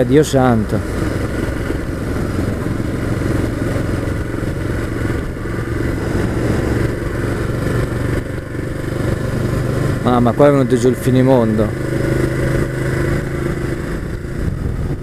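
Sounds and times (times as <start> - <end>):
motorcycle engine running: 0.0 - 15.0
wind and road noise: 0.0 - 15.0.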